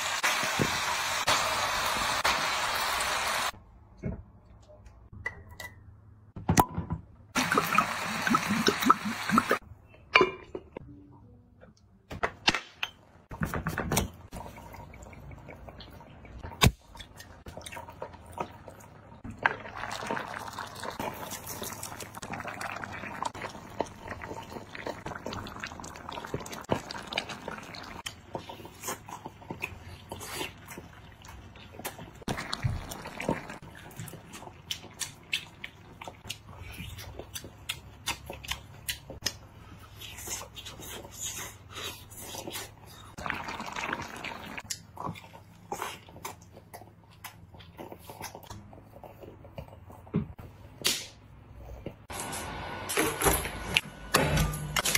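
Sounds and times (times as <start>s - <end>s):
pot bubbling with hiss: 7.4s - 9.6s, 17.5s - 36.6s, 40.4s - 45.8s.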